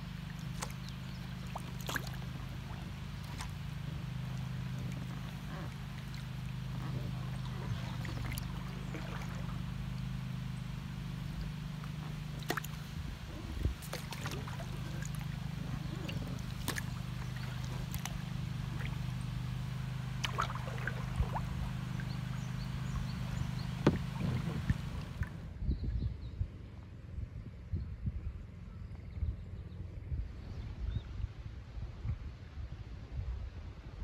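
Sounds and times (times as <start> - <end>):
water trickling and sloshing: 0.0 - 25.5
steady low hum: 0.0 - 34.0
small drips and knocks: 0.3 - 10.1, 11.4 - 12.8, 13.8 - 19.1, 20.1 - 25.4.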